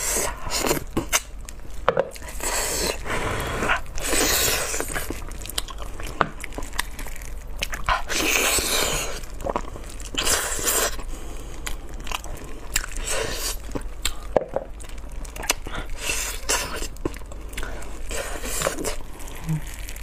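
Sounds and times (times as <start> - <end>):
wet chewing and biting: 0.2 - 20.0
mouth clicks and smacks: 14.0 - 15.7.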